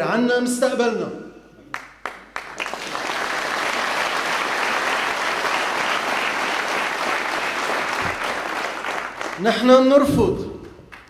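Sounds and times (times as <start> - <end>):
audience applauding: 1.7 - 9.6.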